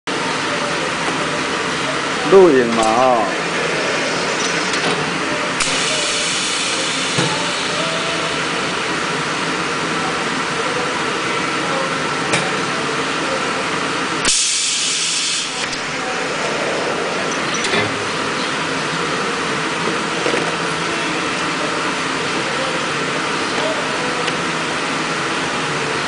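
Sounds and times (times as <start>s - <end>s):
welding machine hiss and hum: 0.2s - 10.0s, 12.6s - 26.0s
compressed-air hiss burst: 5.6s - 7.8s, 14.2s - 15.7s.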